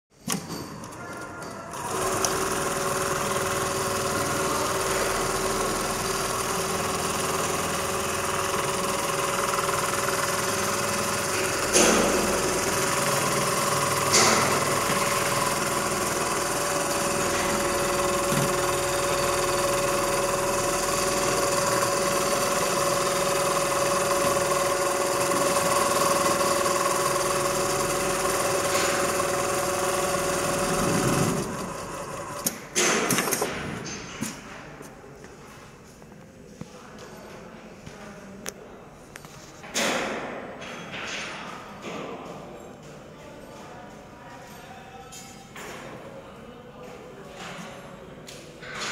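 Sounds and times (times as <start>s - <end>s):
sewing machine running: 1.7s - 33.5s.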